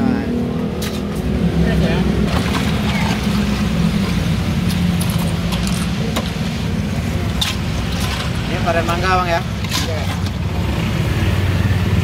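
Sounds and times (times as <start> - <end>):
road traffic rumble: 0.0 - 12.0
ice clinking in plastic tub: 2.3 - 3.6.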